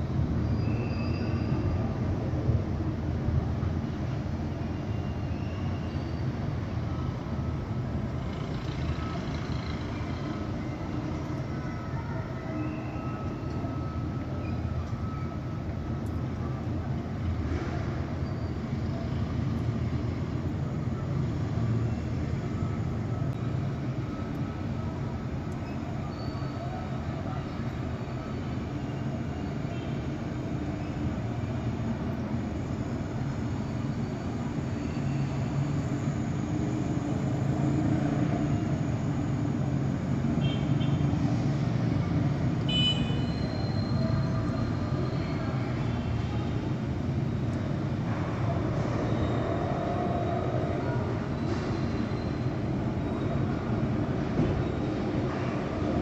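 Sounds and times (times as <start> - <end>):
distant city traffic rumble: 0.0 - 56.0.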